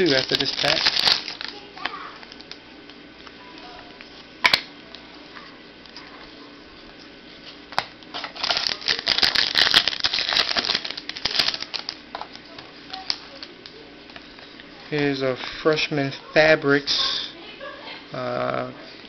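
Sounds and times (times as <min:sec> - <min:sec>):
wrapper and cards crinkling: 0:00.0 - 0:02.6, 0:08.1 - 0:13.8.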